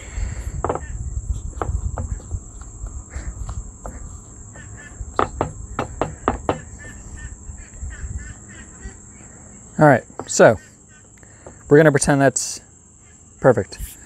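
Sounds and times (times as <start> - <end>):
high-pitched insect drone: 0.0 - 14.0
hands patting dough on board: 1.6 - 6.7
light knocks: 5.2 - 6.9.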